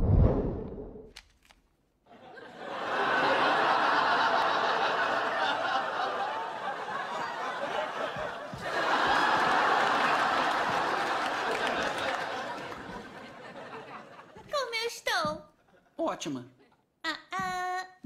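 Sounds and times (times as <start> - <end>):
studio audience laughing: 2.1 - 14.5.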